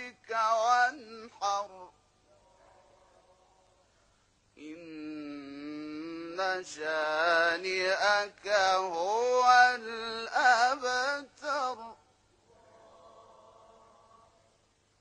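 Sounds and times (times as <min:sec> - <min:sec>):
man chanting melodically: 0:00.0 - 0:01.9, 0:04.6 - 0:12.0
faint steady noise: 0:00.0 - 0:15.0.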